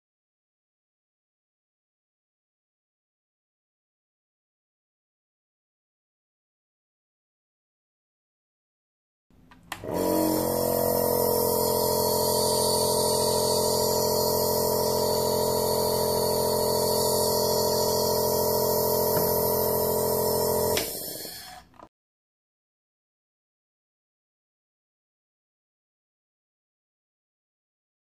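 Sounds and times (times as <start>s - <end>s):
compressor hum with air hiss: 9.8s - 21.7s.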